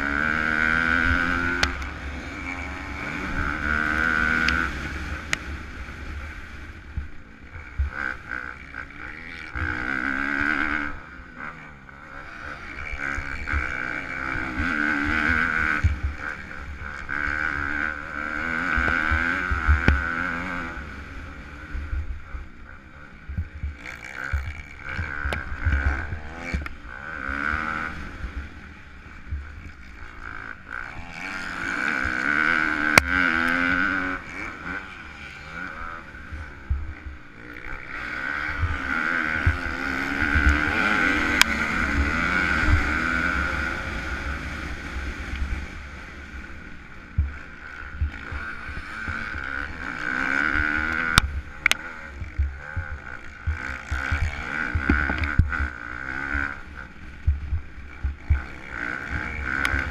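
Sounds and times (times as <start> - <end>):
motocross engine revving: 0.0 - 59.9
wind rumble on microphone: 12.3 - 59.9.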